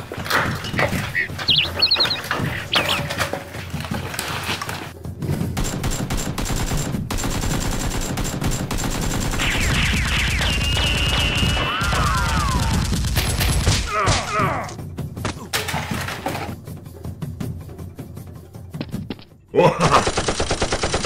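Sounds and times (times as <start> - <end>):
automatic gunfire: 5.6 - 13.8.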